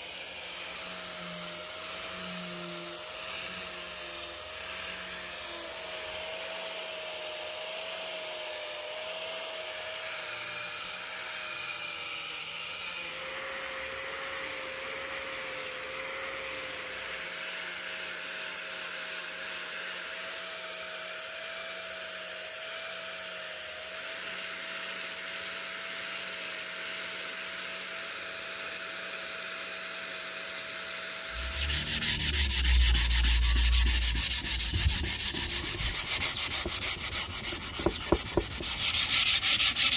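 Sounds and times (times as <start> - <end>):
angle grinder motor whine: 31.4 - 38.5
abrasive rasping on wood: 31.4 - 39.9
hand sanding wood: 31.4 - 39.9.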